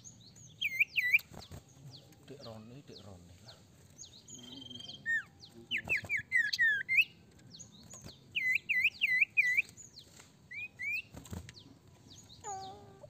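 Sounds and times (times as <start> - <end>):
bird singing whistled notes: 0.0 - 3.1, 4.0 - 12.8.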